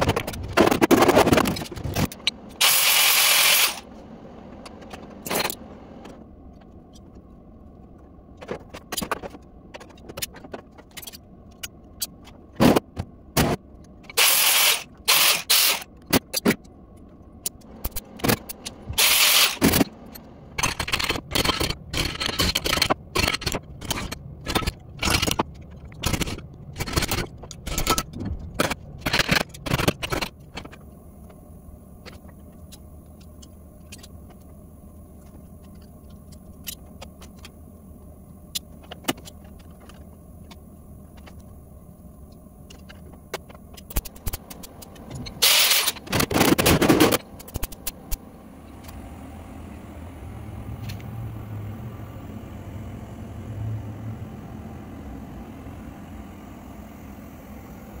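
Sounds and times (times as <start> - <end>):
crackling welding bursts: 2.6 - 3.9, 14.2 - 15.9, 18.9 - 19.8, 45.4 - 47.8
low hum: 16.6 - 58.0.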